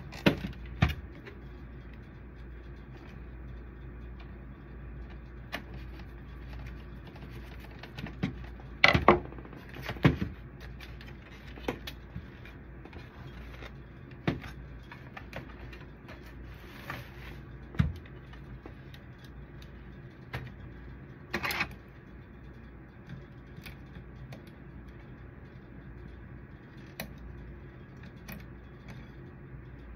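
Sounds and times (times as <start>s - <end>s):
steady low hum: 0.0s - 29.9s
plastic parts clicking and knocking: 6.6s - 12.0s.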